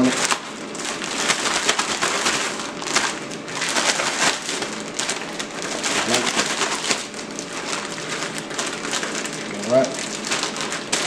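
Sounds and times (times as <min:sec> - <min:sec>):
bag of flour being shaken: 0:00.0 - 0:11.0.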